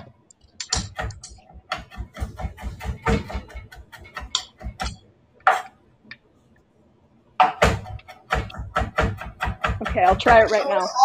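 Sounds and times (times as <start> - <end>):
knife chopping on cutting board: 0.9 - 5.7, 7.4 - 10.4.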